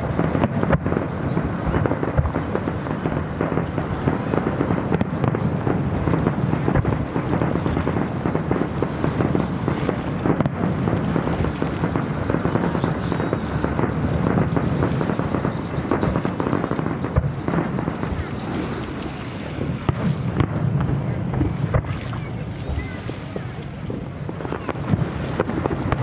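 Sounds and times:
firework crackles: 0:00.0 - 0:26.0
firework shells booming: 0:00.0 - 0:26.0.

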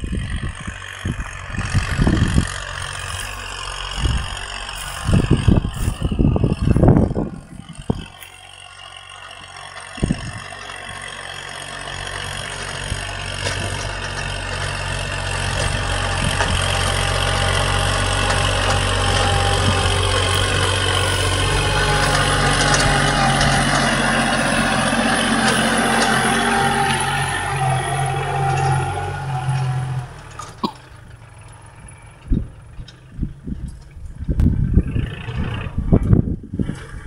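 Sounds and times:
tractor diesel engine running: 0:00.0 - 0:37.0.

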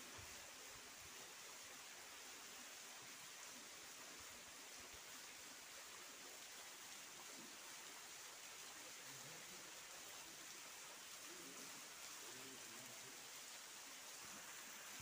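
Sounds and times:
waterfall splashing into pool: 0:00.0 - 0:15.0.

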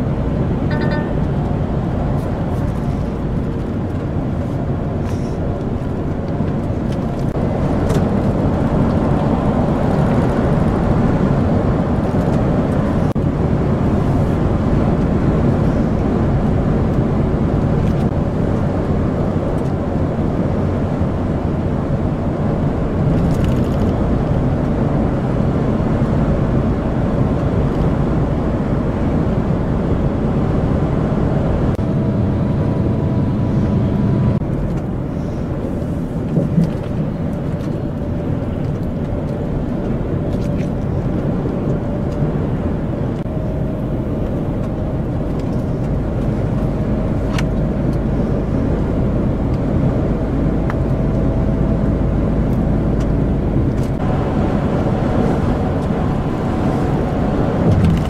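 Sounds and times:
lorry engine and tyres droning: 0:00.0 - 0:58.0
faint whine: 0:00.6 - 0:03.4.

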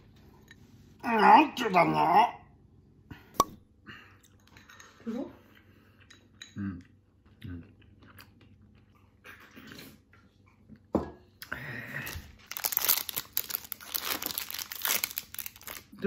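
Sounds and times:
person chewing: 0:05.5 - 0:11.5
plastic snack wrapper crinkling: 0:12.1 - 0:16.0.

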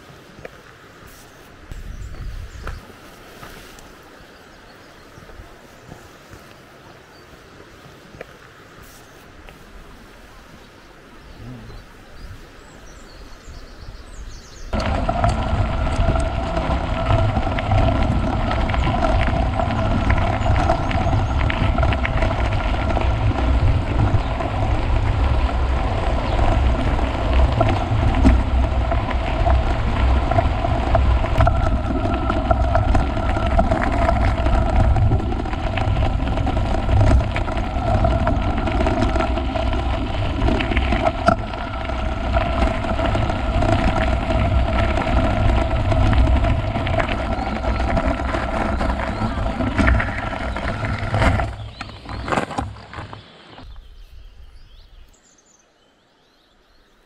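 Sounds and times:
low rumble: 0:14.5 - 0:52.4
motor hum: 0:14.7 - 0:52.8.

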